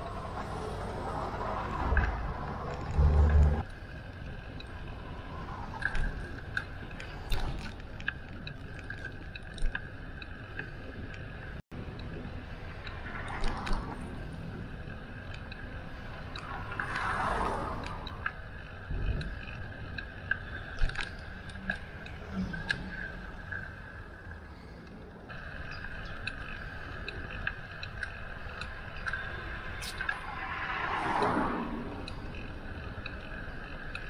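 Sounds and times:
bicycle clicks and rattles: 0:00.0 - 0:34.0
rushing air while cycling: 0:00.0 - 0:34.0.

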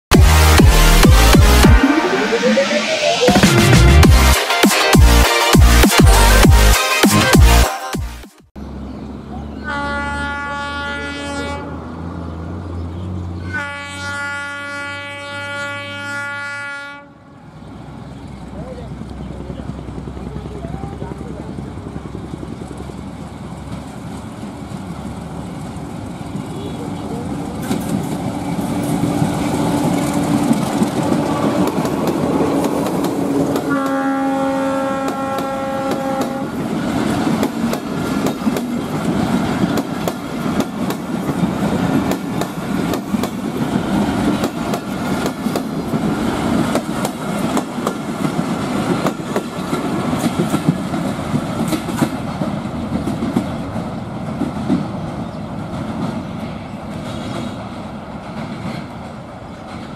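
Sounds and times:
diesel locomotive passing: 0:08.6 - 0:59.9
train horn blast: 0:09.6 - 0:11.9, 0:13.4 - 0:17.4, 0:33.5 - 0:36.6
train wheels clicking on rail joints: 0:21.5 - 0:34.0, 0:35.0 - 0:59.9.

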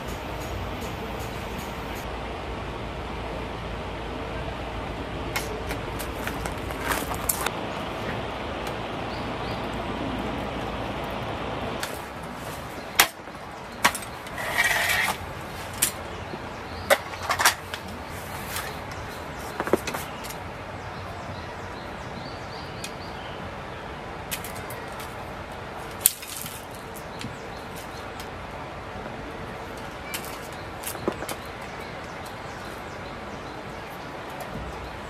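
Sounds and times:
steady background hiss: 0:00.0 - 0:35.0.

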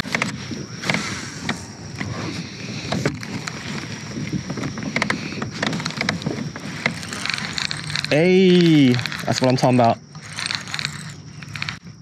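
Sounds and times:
wind and water hiss: 0:00.0 - 0:12.0
fishing reel clicks and knocks: 0:04.6 - 0:11.8.

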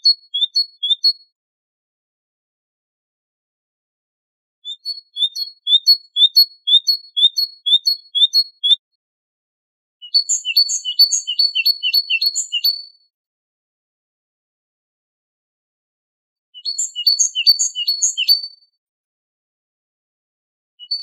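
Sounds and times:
great tit singing: 0:00.0 - 0:01.2, 0:04.7 - 0:08.8, 0:16.6 - 0:18.4.

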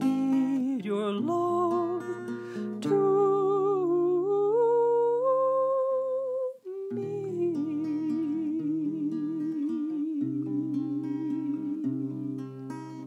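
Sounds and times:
acoustic guitar chords: 0:00.0 - 0:05.9, 0:06.8 - 0:13.0
woman humming: 0:00.0 - 0:13.0.

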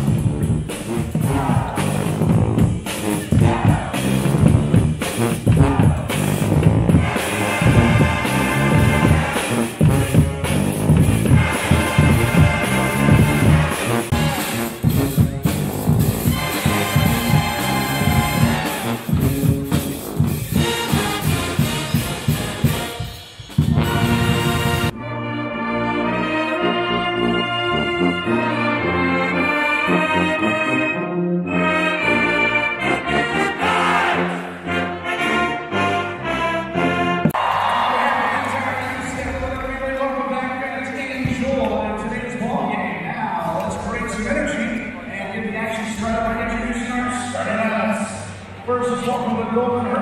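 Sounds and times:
sousaphone bass line: 0:00.0 - 0:20.7
drums: 0:00.0 - 0:25.0, 0:38.9 - 0:42.5
pep band playing: 0:00.0 - 0:36.3.

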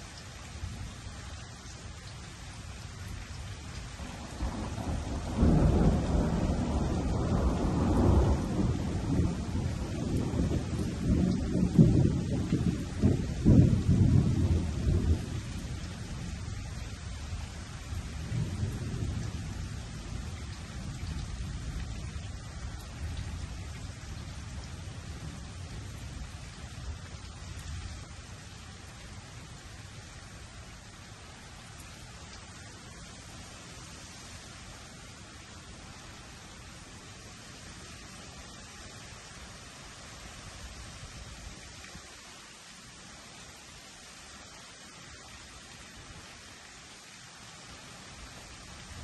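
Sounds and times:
steady rain falling: 0:00.0 - 0:49.0
rolling thunder: 0:04.0 - 0:15.5.

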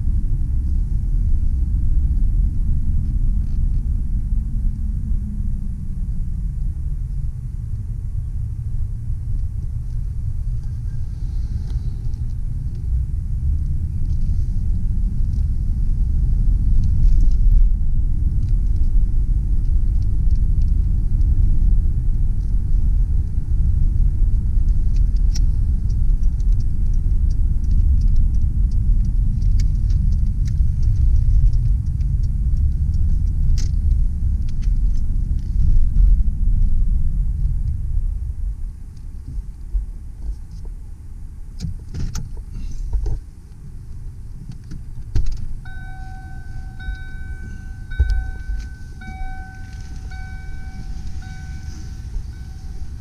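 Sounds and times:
car interior road rumble: 0:00.0 - 0:53.0
light clicks and ticks: 0:24.7 - 0:35.5.

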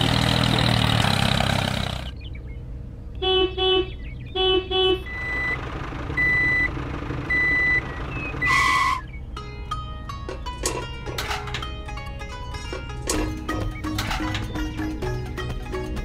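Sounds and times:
truck engine running: 0:00.0 - 0:16.0
truck horn honking: 0:03.2 - 0:05.6, 0:07.3 - 0:09.1
reversing beeper: 0:05.0 - 0:05.6, 0:06.2 - 0:09.0.

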